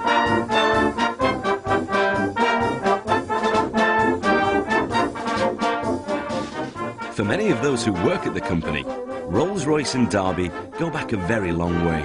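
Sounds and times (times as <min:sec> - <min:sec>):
brass band playing: 0:00.0 - 0:12.0.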